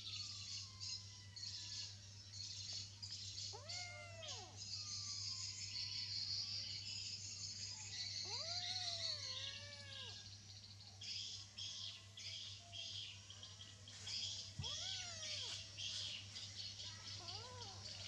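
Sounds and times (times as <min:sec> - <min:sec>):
kitten meowing: 0:03.5 - 0:04.6, 0:08.3 - 0:10.2, 0:14.6 - 0:15.5.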